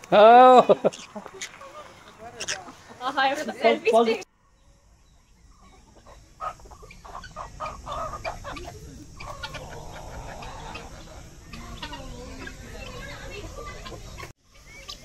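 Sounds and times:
birds clucking: 0.0s - 15.0s
long drawn-out bird call: 4.4s - 15.0s.

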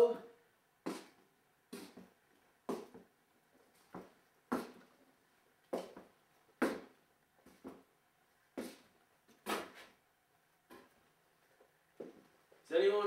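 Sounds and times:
footsteps on hard floor: 0.9s - 2.1s, 2.7s - 4.9s, 5.7s - 7.9s, 12.0s - 12.6s.

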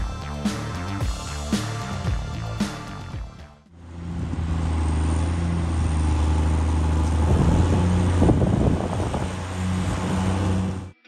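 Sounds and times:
diesel tractor engine droning: 0.0s - 11.0s.

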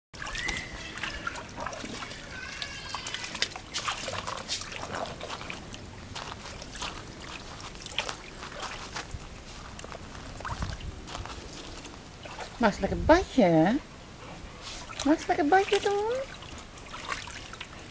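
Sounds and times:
dog splashing in water: 0.2s - 12.9s, 14.6s - 17.9s
water dripping: 0.2s - 12.9s.

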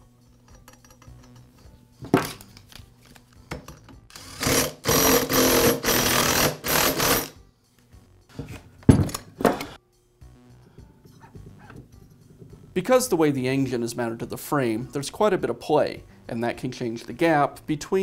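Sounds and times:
impact driver hammering: 4.4s - 7.3s.

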